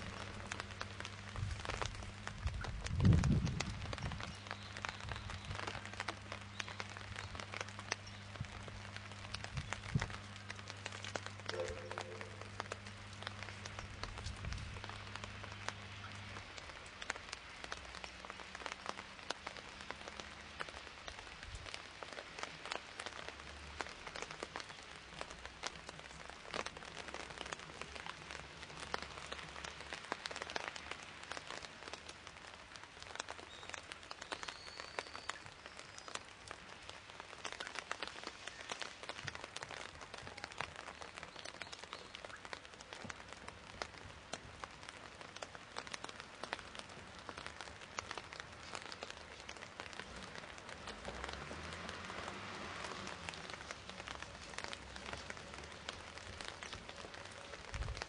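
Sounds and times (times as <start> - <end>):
raindrop impacts: 0.0 - 58.0
steady rain falling: 0.0 - 58.0.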